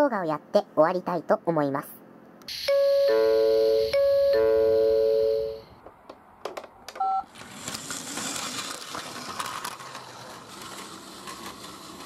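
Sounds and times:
brief tone: 2.6s - 5.7s
toy train motor whirring: 7.3s - 12.0s.

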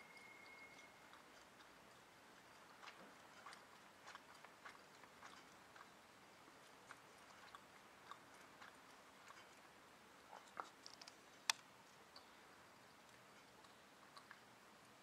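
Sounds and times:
faint nibbling clicks: 0.0s - 14.6s.

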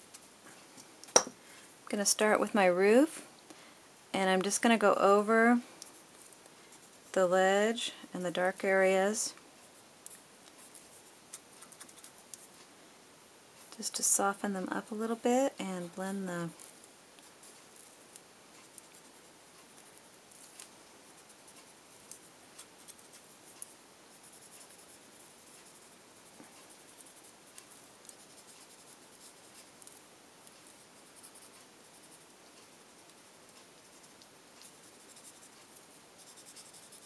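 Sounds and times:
blending stump scratching on paper: 10.0s - 12.7s, 16.5s - 37.0s.

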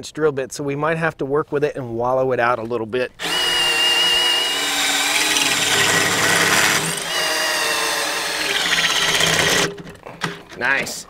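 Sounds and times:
drill boring through metal: 3.2s - 9.7s.

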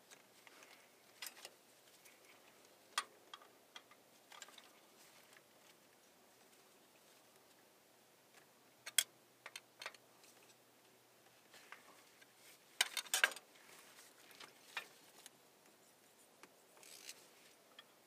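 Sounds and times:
hand tools clicking and scraping metal: 12.2s - 13.5s.

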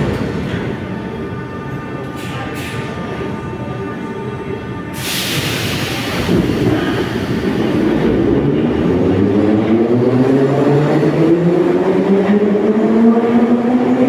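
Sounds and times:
sharp air hiss: 5.0s - 7.5s.

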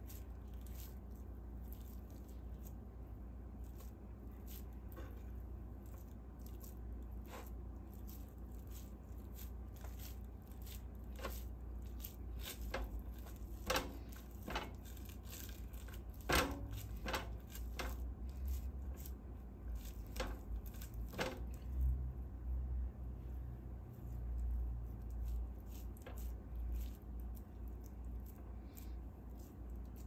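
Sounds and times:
hands patting sticky food: 0.0s - 21.9s
low steady hum: 0.0s - 30.0s.

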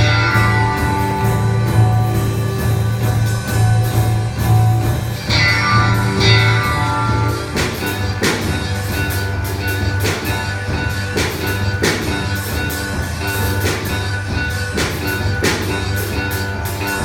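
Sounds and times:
held electric guitar notes: 0.0s - 17.0s.

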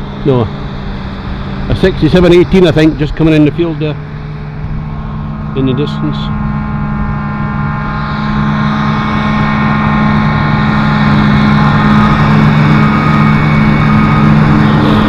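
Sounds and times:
diesel farm machinery engine drone: 0.0s - 15.0s.

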